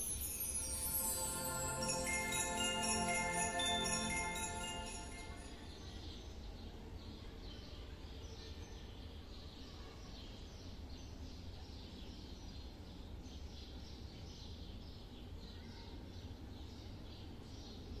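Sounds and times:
high chirps: 0.0 - 5.8.

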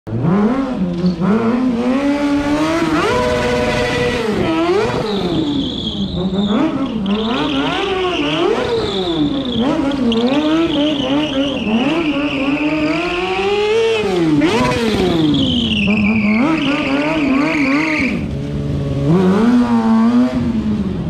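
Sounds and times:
motorcycle engine revving: 0.1 - 21.0.

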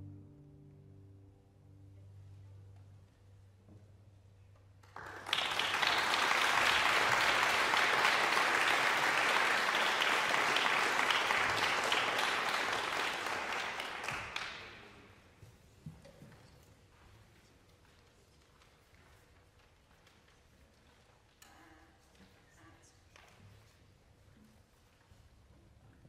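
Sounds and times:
audience applauding: 4.8 - 15.1.

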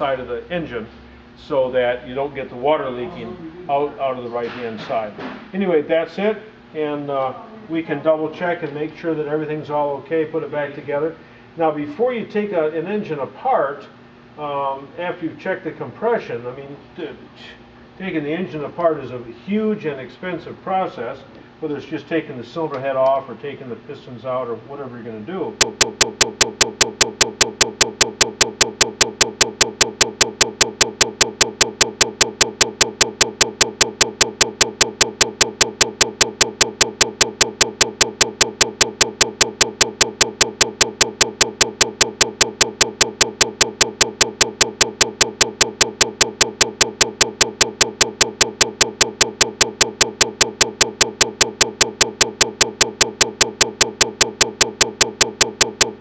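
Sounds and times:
constant buzz: 25.5 - 56.0
repeating sharp clicks: 25.6 - 56.0.

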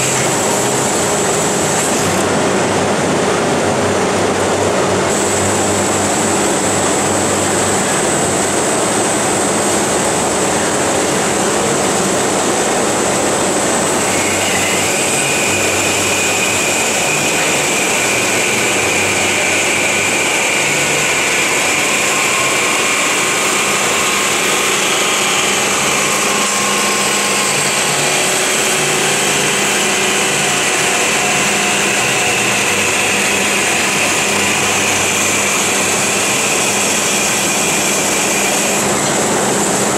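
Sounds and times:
lower whine: 0.0 - 39.9
band saw high-pitched whine: 13.0 - 39.9.

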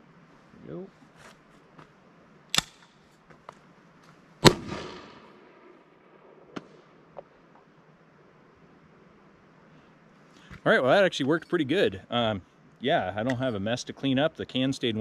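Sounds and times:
can launcher firing: 4.4 - 5.3.

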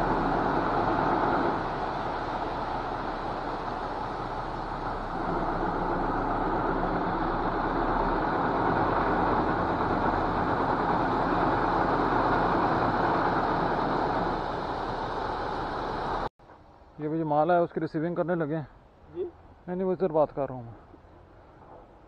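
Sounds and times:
diesel engine running: 0.0 - 16.3.

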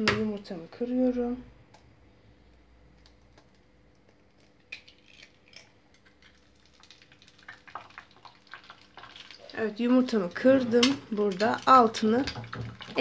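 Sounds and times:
egg cracking: 1.7 - 13.0
egg frying in hot oil: 2.9 - 13.0.

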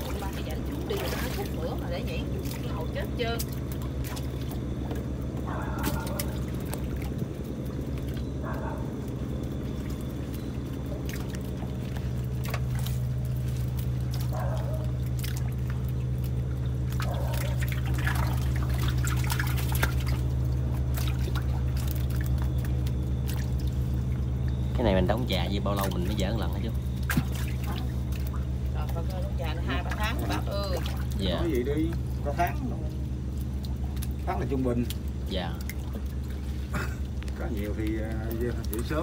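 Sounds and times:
low motor hum: 0.0 - 39.0
water dripping and pouring: 0.0 - 39.0
wet slaps of fish: 3.4 - 7.2, 9.9 - 23.8, 27.0 - 29.0.

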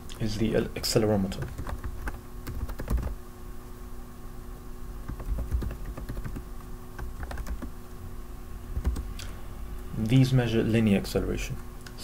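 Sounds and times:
keyboard typing: 1.4 - 3.2, 5.1 - 7.7, 8.8 - 9.2.

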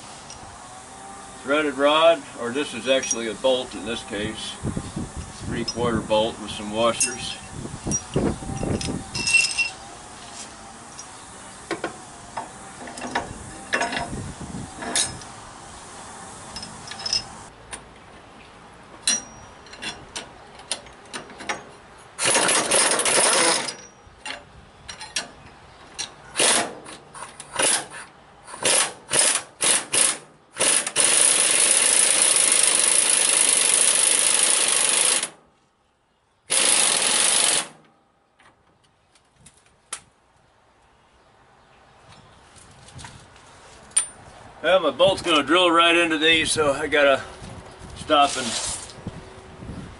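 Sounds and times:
metal washers clinking: 2.9 - 3.4, 6.9 - 9.8, 16.5 - 17.5, 19.0 - 21.8, 22.7 - 26.2
pneumatic impact wrench hammering: 11.0 - 15.3, 16.4 - 17.5, 21.4 - 24.0, 26.3 - 35.4, 36.5 - 37.8.

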